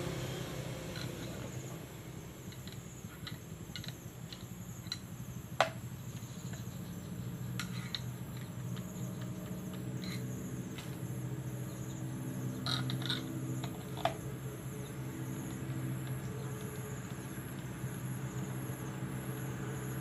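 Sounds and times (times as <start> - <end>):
steady low hum: 0.0 - 20.0
screwdriver clicking in metal bearing: 2.5 - 5.1.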